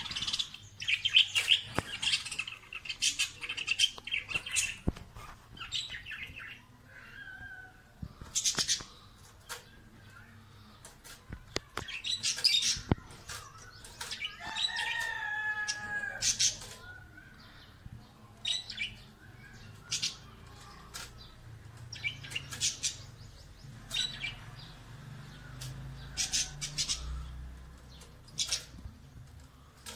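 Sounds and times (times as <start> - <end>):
parrots chirping: 0.0 - 7.3.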